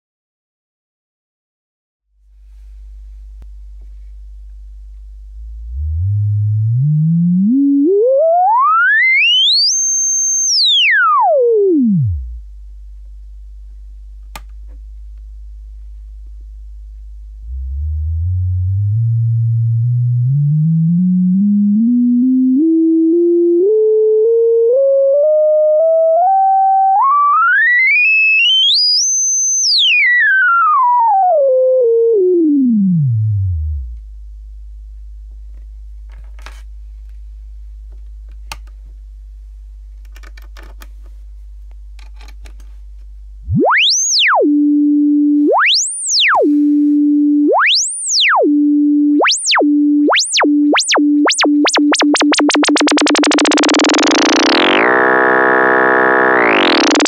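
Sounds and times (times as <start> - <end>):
sine tone gliding up and down: 4.8 - 12.5, 17.3 - 34.1, 43.4 - 57.0.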